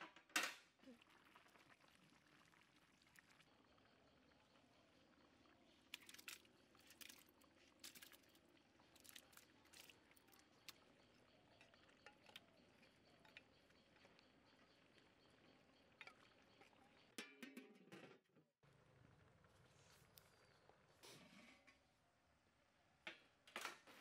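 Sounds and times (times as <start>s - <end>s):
metal pan clinking against pot: 17.2s - 18.1s.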